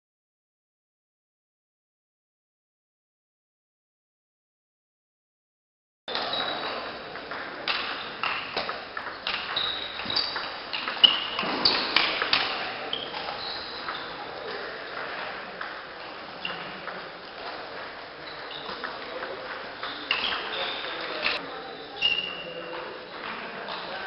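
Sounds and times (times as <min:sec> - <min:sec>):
ball pinging on table: 0:06.1 - 0:15.8
ball clicking off bats: 0:06.1 - 0:21.4
sports hall hum: 0:06.1 - 0:24.0.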